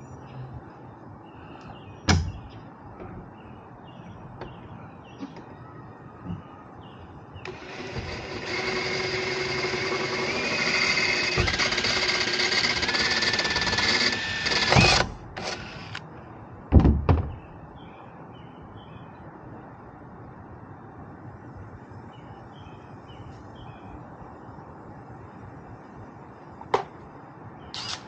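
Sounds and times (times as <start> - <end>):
cordless drill whining: 7.4 - 16.0, 27.8 - 28.0
loud knocks: 16.7 - 17.5.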